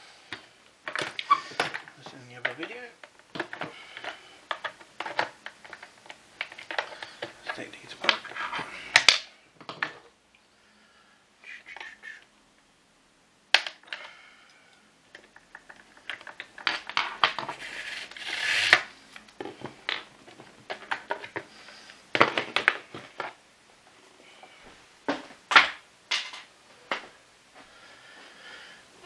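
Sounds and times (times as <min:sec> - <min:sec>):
plastic clicks and rattles: 0:00.3 - 0:08.3, 0:15.1 - 0:17.5
brief scrape: 0:17.6 - 0:18.8.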